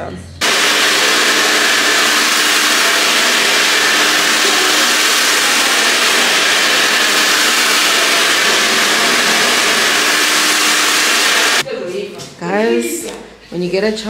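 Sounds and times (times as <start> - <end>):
hair dryer blowing: 0.4 - 11.6.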